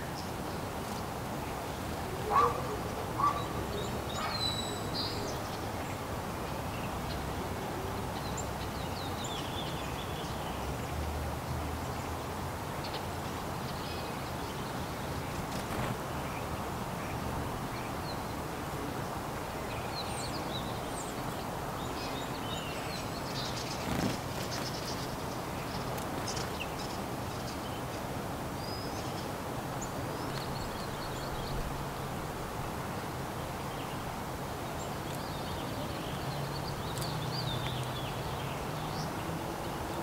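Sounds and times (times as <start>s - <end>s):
outdoor background hiss: 0.0s - 40.0s
wild birds calling: 2.0s - 5.6s.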